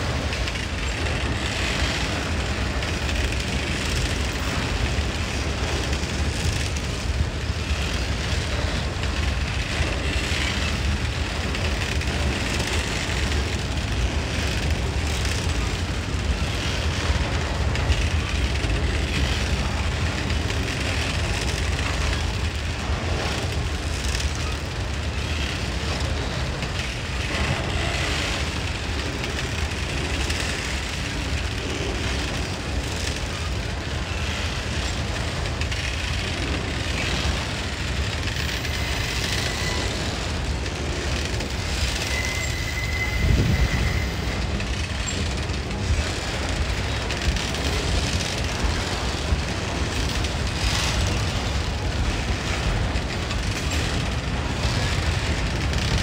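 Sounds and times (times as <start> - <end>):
train rumbling past: 0.0 - 56.0
wheels clacking: 0.0 - 56.0
high squeals: 42.0 - 44.4.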